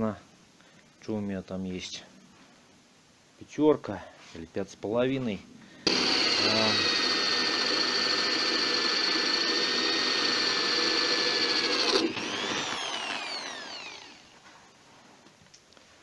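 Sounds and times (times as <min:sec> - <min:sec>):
electric drill boring through metal: 0:05.8 - 0:14.4.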